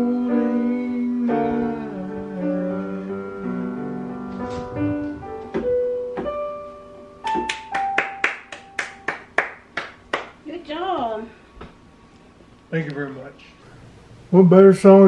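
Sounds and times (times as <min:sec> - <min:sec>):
digital piano notes and chords: 0:00.0 - 0:09.4.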